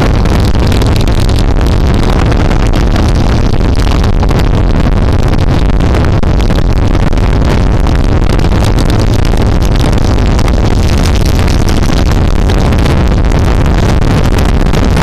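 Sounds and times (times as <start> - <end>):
constant crackle: 0.0 - 15.0
vehicle engine and road noise: 0.0 - 15.0
wind buffeting microphone: 0.0 - 15.0.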